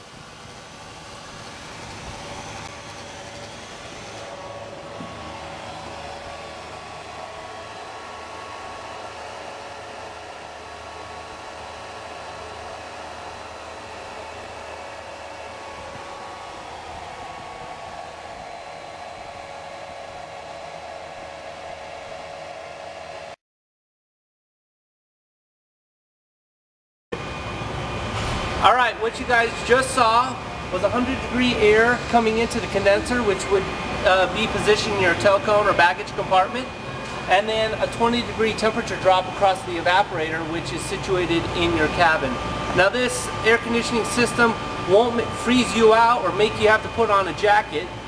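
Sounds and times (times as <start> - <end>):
air conditioner blower rushing air: 0.0 - 23.4, 27.2 - 48.0
steady whirring tone: 0.0 - 23.4, 27.2 - 48.0.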